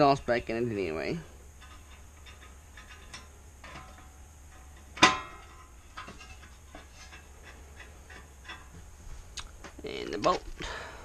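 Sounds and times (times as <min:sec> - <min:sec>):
ringing metal clank: 0:01.6 - 0:08.7
metal tools clicking and tapping: 0:01.6 - 0:08.8.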